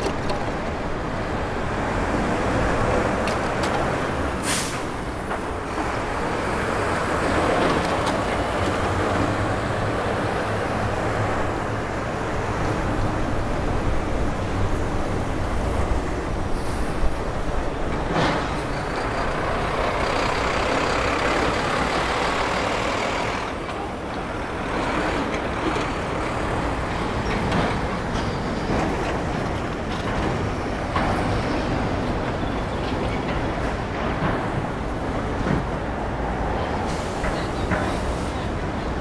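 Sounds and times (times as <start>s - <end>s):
street traffic: 0.0s - 39.0s.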